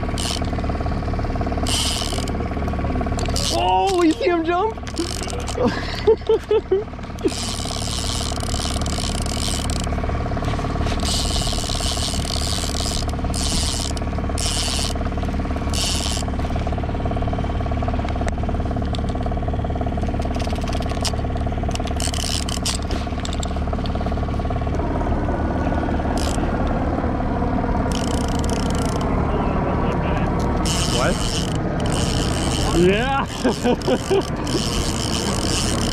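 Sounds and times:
fishing reel clicker ratcheting: 0.0s - 0.7s, 1.6s - 6.4s, 7.0s - 10.0s, 10.8s - 16.5s, 18.3s - 19.3s, 20.0s - 23.9s, 26.1s - 26.7s, 27.9s - 29.1s, 30.4s - 35.9s
outboard motor droning: 0.0s - 35.9s.

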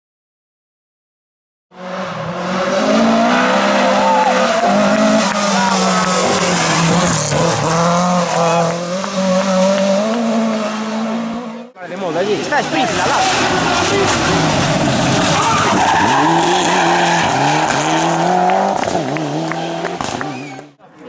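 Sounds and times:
rally car engine at high revs: 1.7s - 20.8s
tyres squealing: 12.7s - 18.2s.

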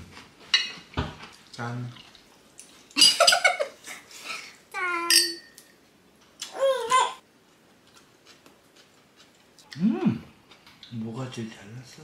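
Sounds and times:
wine glasses clinking: 5.0s - 5.7s.

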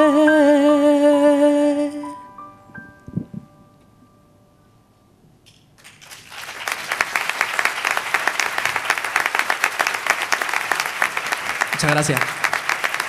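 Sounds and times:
audience applause: 5.8s - 13.0s.

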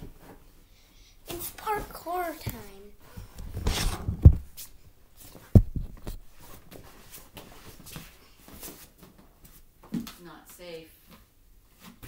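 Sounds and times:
light knocks and footfalls: 2.4s - 10.2s.

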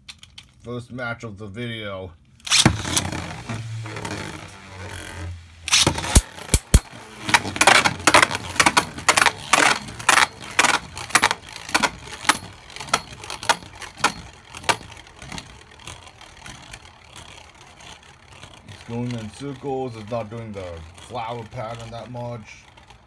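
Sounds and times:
spinning tops clacking: 2.4s - 19.4s.

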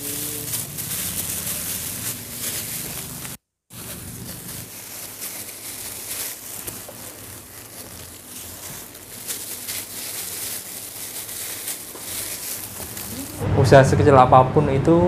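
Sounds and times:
plastic glove rustling: 0.0s - 13.4s.

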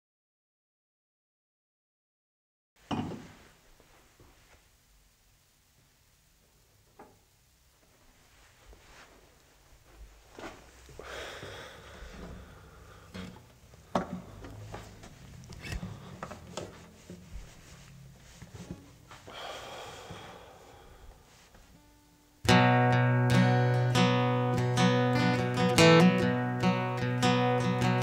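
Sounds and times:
faint rustling: 3.2s - 21.9s
acoustic guitar strumming: 12.0s - 19.0s, 21.7s - 28.0s.

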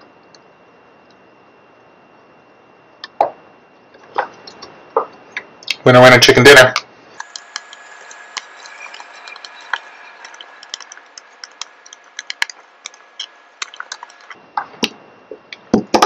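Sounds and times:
faint steady whine: 0.0s - 16.0s.

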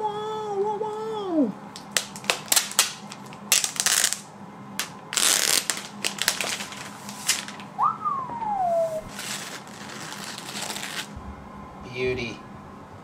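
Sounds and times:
plastic wrap crinkling: 1.8s - 7.7s, 9.1s - 11.1s
high whine rising and sliding down: 7.8s - 13.0s.

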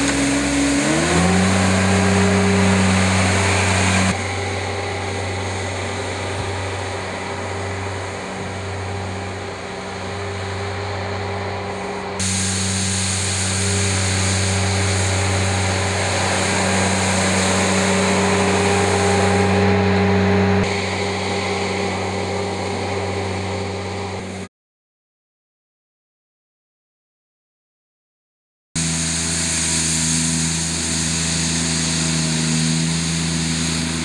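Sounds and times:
loader engine hum: 0.0s - 24.5s, 28.8s - 34.0s
rotary broom sweeping snow: 0.0s - 24.5s, 28.8s - 34.0s.

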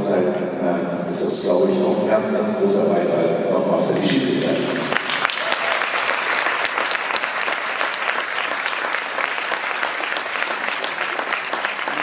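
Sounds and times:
crowd applauding: 4.0s - 12.0s.

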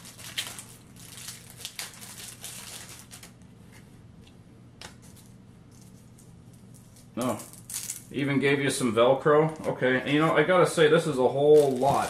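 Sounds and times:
packaging rustling: 0.0s - 3.4s, 11.4s - 12.0s.

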